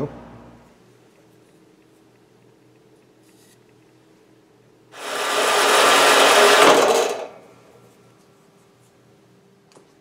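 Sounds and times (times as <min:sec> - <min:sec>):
bandsaw cutting steel: 0:05.0 - 0:07.3.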